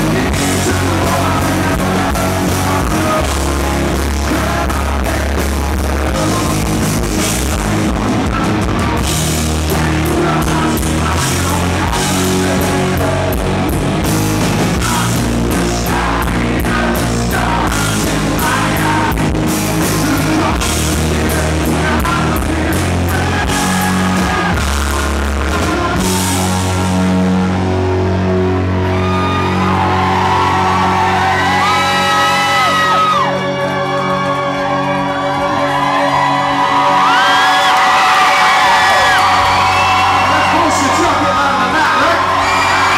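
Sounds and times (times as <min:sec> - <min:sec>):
man singing: 0:00.0 - 0:13.7, 0:14.6 - 0:26.7
drums: 0:00.0 - 0:42.9
electric guitar: 0:00.0 - 0:42.9
sustained bass: 0:00.0 - 0:42.9.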